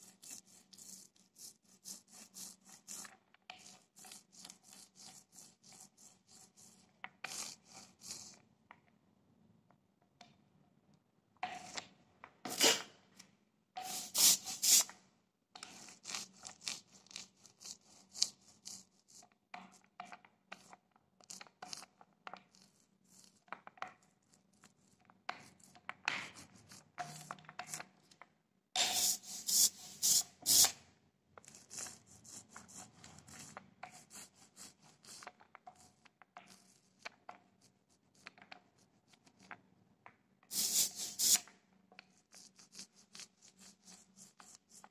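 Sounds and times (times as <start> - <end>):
hand roller rubbing over beads: 13.8 - 14.9, 28.8 - 30.7, 40.5 - 41.4.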